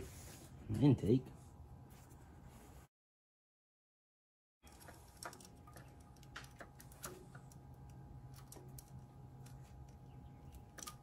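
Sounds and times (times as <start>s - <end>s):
steady low hum: 4.6s - 11.0s.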